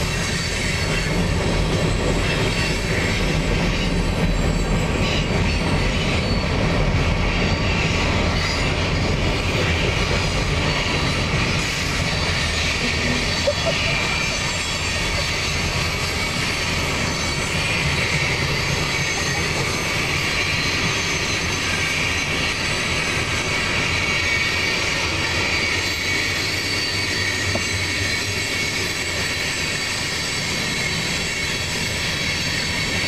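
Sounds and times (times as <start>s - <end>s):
steel wheels rumbling on rail: 0.0s - 33.0s.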